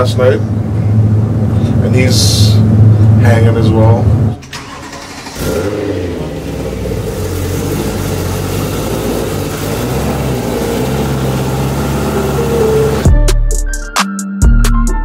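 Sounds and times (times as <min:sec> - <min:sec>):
car engine idling: 0:00.0 - 0:13.1
music with heavy bass beats: 0:11.5 - 0:15.0.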